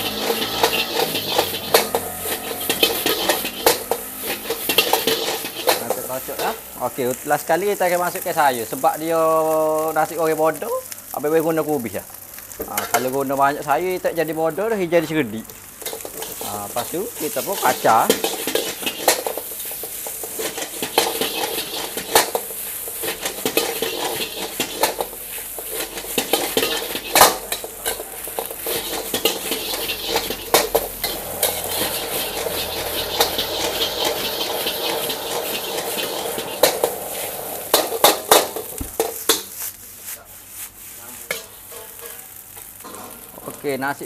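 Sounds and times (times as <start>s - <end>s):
metal ladle clanking on wok: 0.0s - 6.6s, 26.1s - 39.5s
rice sizzling in a wok: 0.0s - 44.0s.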